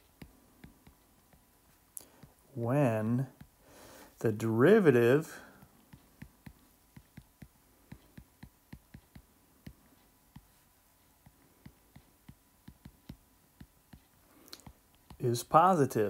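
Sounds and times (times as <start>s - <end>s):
stylus tapping on tablet screen: 0.0s - 2.4s, 3.3s - 3.6s, 5.5s - 15.3s.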